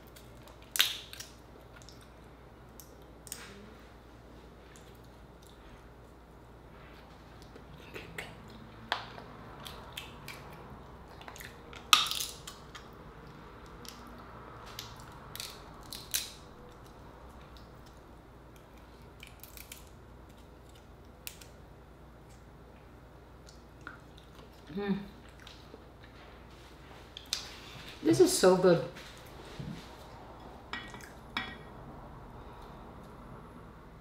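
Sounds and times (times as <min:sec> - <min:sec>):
crab shell cracking: 0:00.1 - 0:02.0, 0:11.2 - 0:12.9, 0:14.7 - 0:21.6.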